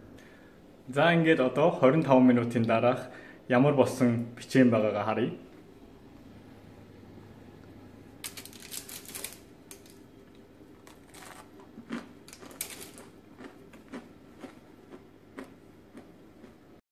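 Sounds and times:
crunchy chewing of cookie: 0:10.7 - 0:16.8.

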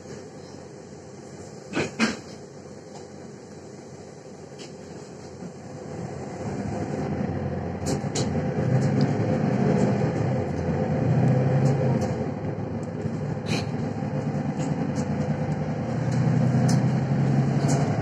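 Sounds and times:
bus diesel engine running: 0:00.0 - 0:18.0
light clicks in bus cabin: 0:07.8 - 0:09.2, 0:09.8 - 0:12.2, 0:12.8 - 0:18.0.

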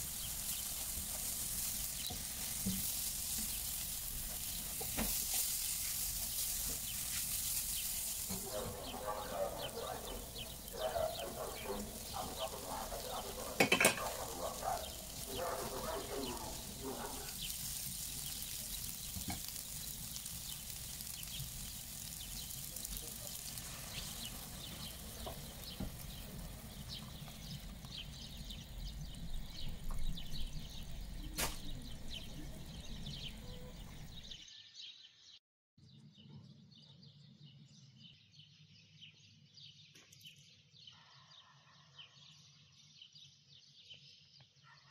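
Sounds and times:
stirring in a pan: 0:00.0 - 0:28.8
sauce simmering: 0:00.0 - 0:34.3
food sizzling in a frying pan: 0:00.0 - 0:34.4.

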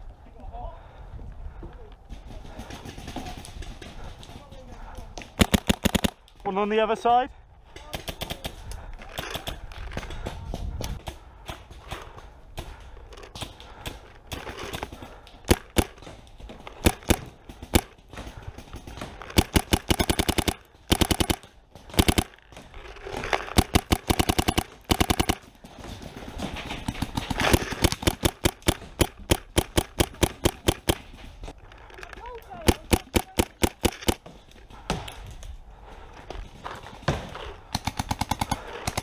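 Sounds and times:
paintball markers firing: 0:02.5 - 0:06.4, 0:11.8 - 0:25.6, 0:26.2 - 0:31.3, 0:32.4 - 0:34.3, 0:37.6 - 0:39.0.

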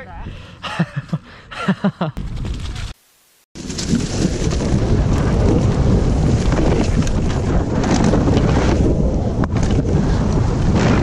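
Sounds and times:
mountain bike rumbling and rattling: 0:03.6 - 0:11.0
wind buffeting microphone: 0:03.6 - 0:11.0.

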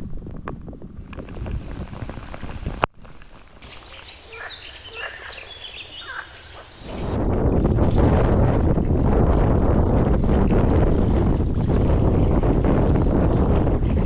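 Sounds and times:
wind buffeting microphone: 0:00.0 - 0:14.0
birds chirping and calling: 0:03.6 - 0:07.2.

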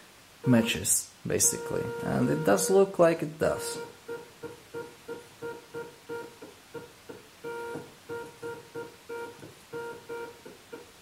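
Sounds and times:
motor humming in short bursts: 0:01.4 - 0:02.7.

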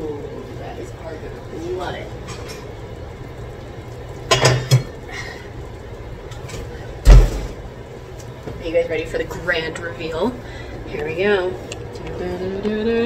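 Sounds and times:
kitchenware clinking: 0:04.3 - 0:05.0
heavy thump: 0:07.0 - 0:07.6.

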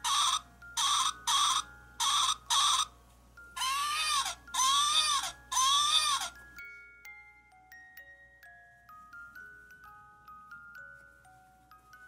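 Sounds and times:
doll baby voice crying: 0:00.0 - 0:06.4
chime-like notes: 0:05.2 - 0:12.0.

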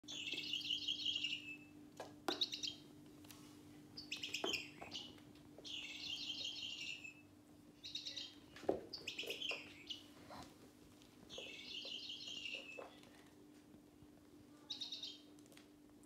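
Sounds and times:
electronic bird chirps: 0:00.1 - 0:01.7, 0:05.7 - 0:07.2.

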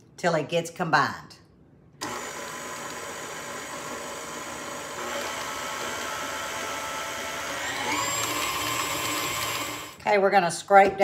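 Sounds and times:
stand mixer motor whining: 0:02.0 - 0:10.0.

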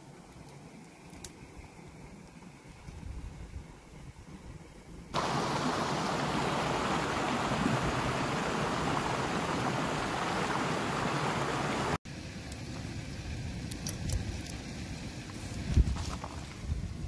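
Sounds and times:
steady rushing hiss: 0:00.0 - 0:17.0.

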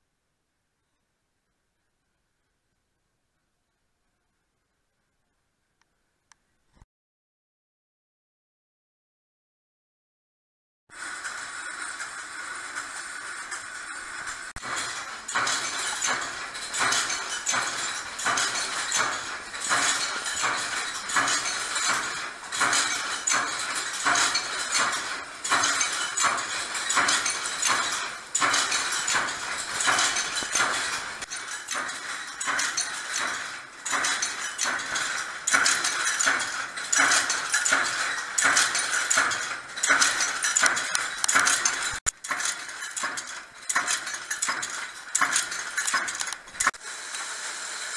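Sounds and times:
machine metallic clatter: 0:10.9 - 0:47.9.

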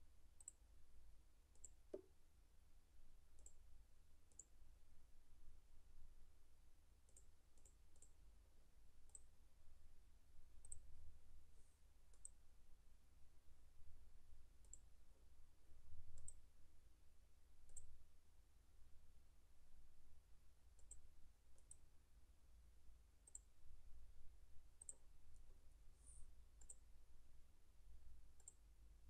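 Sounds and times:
faint low hum: 0:00.0 - 0:29.0
mouse button clicks: 0:01.9 - 0:02.1.

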